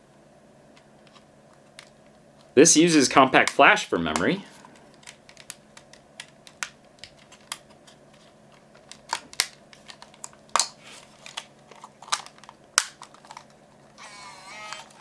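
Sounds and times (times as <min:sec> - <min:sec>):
plastic camera clicks: 0:14.0 - 0:15.0.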